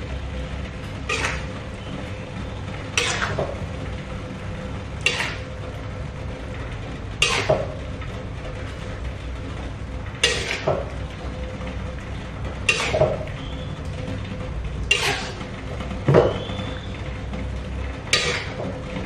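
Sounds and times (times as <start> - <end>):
steady low hum: 0.0 - 19.0
metal spatula scraping a wok: 1.1 - 1.5, 2.9 - 3.4, 5.0 - 5.6, 7.2 - 7.7, 10.2 - 11.0, 12.6 - 13.4, 14.9 - 15.5, 18.1 - 18.6.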